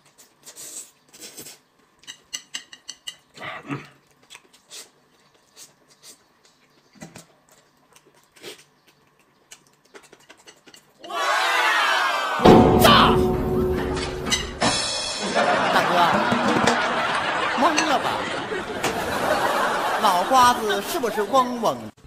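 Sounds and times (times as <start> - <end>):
chewing: 3.1 - 11.0.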